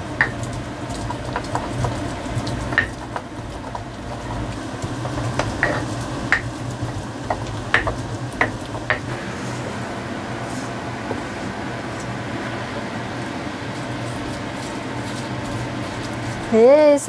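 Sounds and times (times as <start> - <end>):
stone pestle knocking mortar: 2.7 - 4.4, 5.0 - 9.1.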